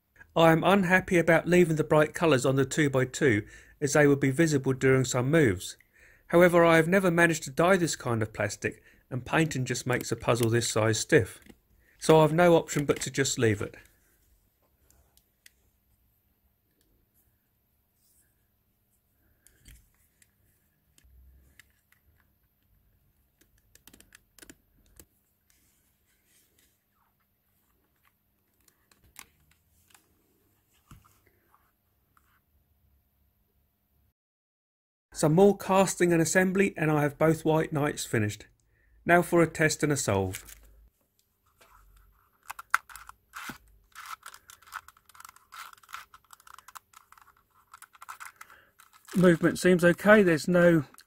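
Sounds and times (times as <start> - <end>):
puzzle pieces clicking: 42.4 - 51.0.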